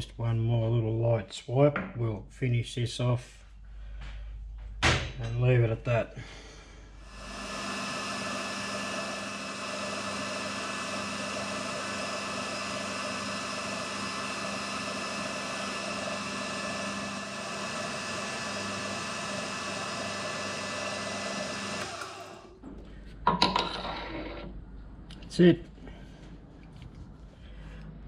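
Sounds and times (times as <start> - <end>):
metal lathe running: 7.0 - 22.6.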